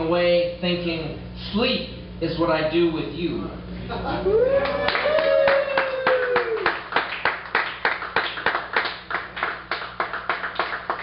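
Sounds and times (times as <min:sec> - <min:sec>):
listener whooping: 0:04.0 - 0:06.9
small audience clapping: 0:04.5 - 0:11.0.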